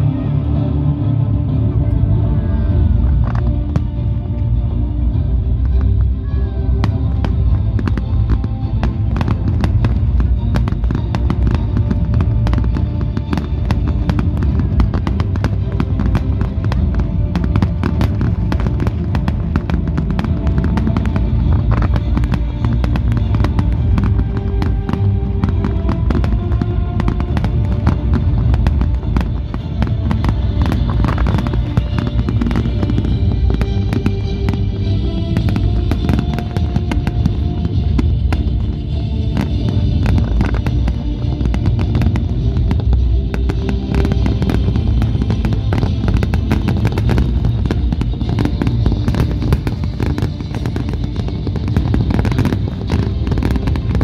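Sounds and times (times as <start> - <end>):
firework bangs and crackles: 0.0 - 54.0
loud music: 0.0 - 54.0.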